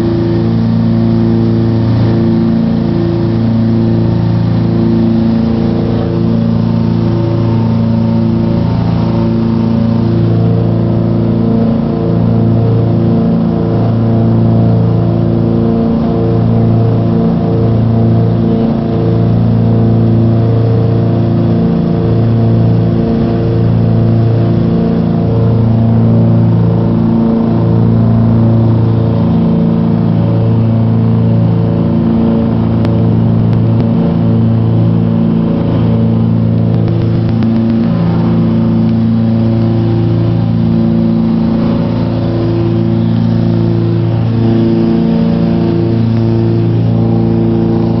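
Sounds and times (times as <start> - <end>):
aircraft engines droning in cabin: 0.0 - 48.0.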